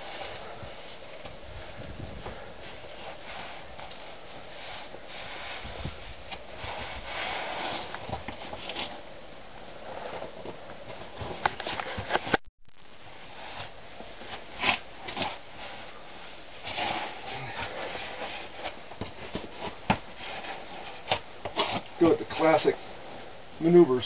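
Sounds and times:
clothing rubbing against rock: 2.2s - 9.1s, 13.3s - 23.3s.

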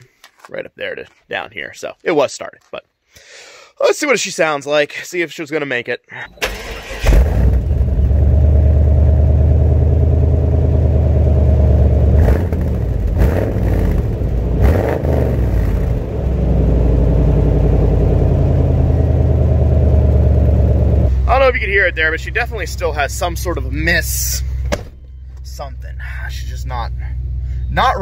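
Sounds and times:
engine revving blips: 6.4s - 23.8s
pickup engine idling rough: 7.3s - 28.0s.

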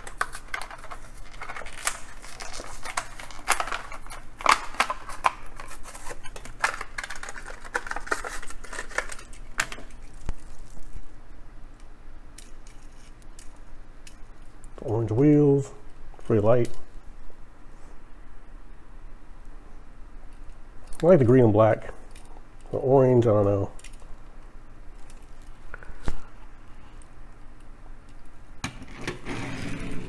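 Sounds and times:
cardboard tearing: 0.0s - 9.2s
plastic blister crackling: 0.0s - 11.0s.

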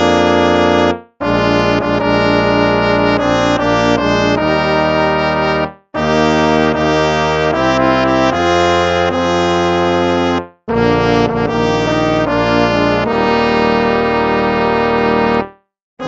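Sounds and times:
slow brass hymn chords: 0.0s - 15.6s.

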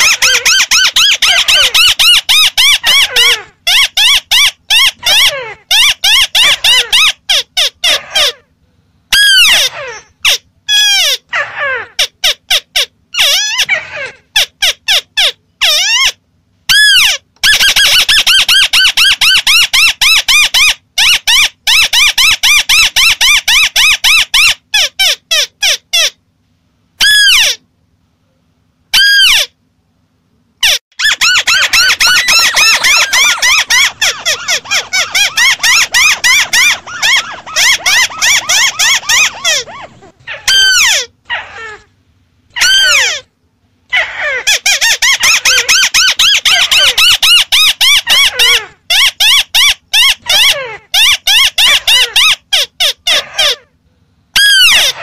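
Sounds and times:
single sweeping bird calls: 31.0s - 40.9s
birds chattering chorus: 31.2s - 40.2s.

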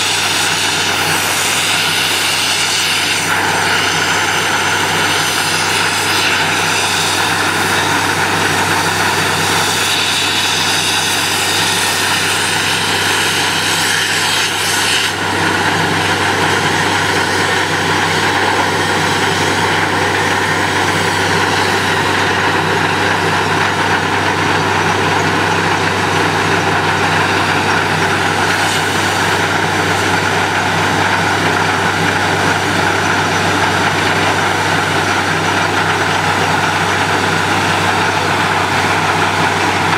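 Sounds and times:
drilling rig engine drone: 0.0s - 39.9s.

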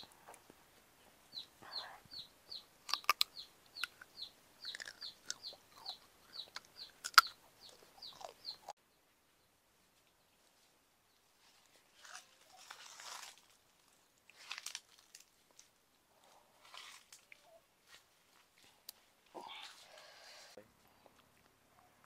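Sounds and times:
chick peeping: 1.3s - 8.7s
wet mouth clicks eating: 2.9s - 8.7s.

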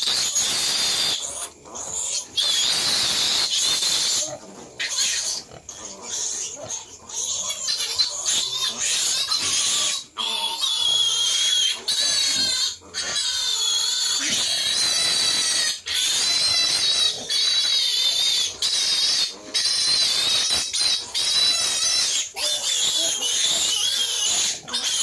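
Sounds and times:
piglets squealing: 0.0s - 25.0s.

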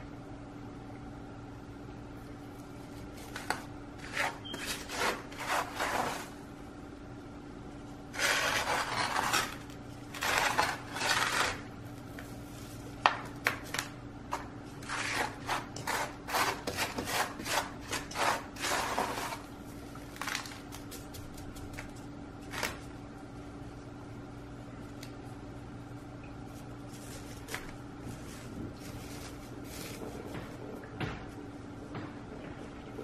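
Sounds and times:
potting mix scraping: 2.7s - 6.4s, 8.1s - 13.1s, 13.7s - 22.9s, 26.5s - 30.9s.

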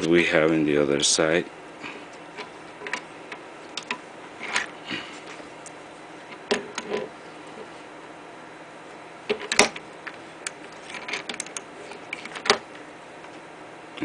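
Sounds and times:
metal parts knocking and clicking: 10.8s - 12.6s.

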